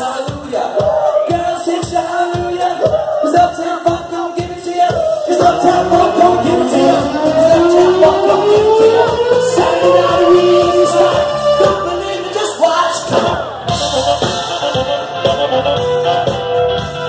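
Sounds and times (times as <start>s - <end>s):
lead singer: 0.0s - 15.9s
drums keeping steady beat: 0.0s - 17.0s
live band playing: 0.0s - 17.0s.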